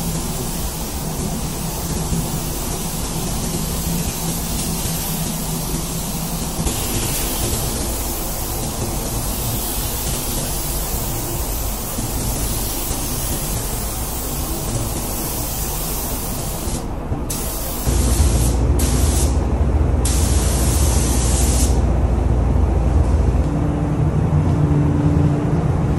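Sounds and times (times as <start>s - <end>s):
paint spray gun hissing: 0.0s - 19.3s.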